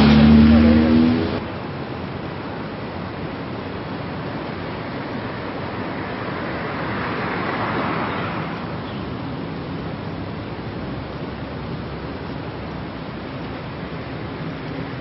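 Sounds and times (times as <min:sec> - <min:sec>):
road traffic rushing: 0:00.0 - 0:15.0.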